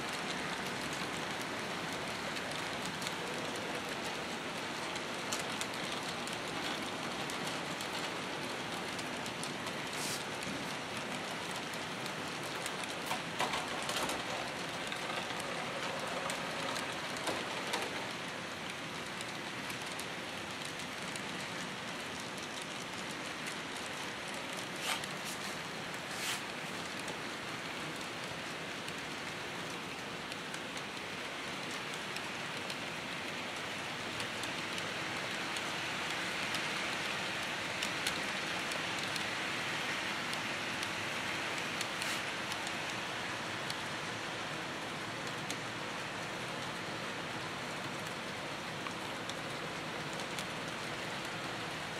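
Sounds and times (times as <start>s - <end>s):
model trains rolling hiss: 4.9s - 18.2s, 24.6s - 26.9s, 31.8s - 51.9s.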